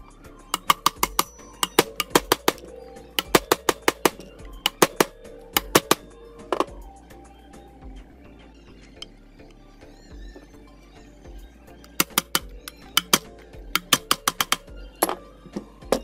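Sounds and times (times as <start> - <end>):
metal pipe tapping bearing: 0.6 - 6.8, 11.8 - 15.2.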